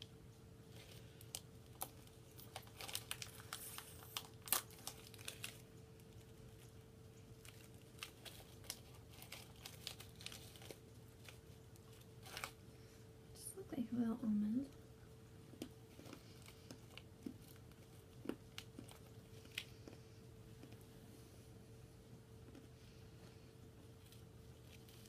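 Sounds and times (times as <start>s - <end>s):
snack packet crinkling and tearing: 0.7s - 12.6s, 15.5s - 20.0s, 23.9s - 25.0s.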